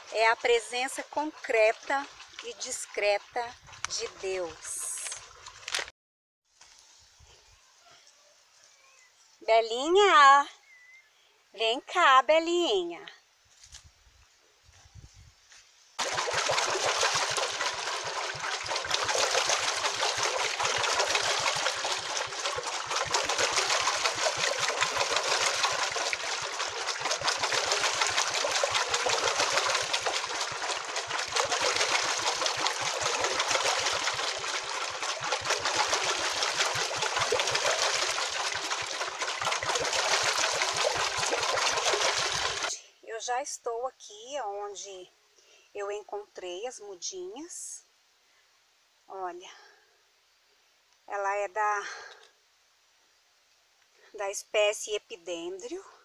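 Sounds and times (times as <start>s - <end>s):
water rushing and splashing: 16.0s - 42.7s.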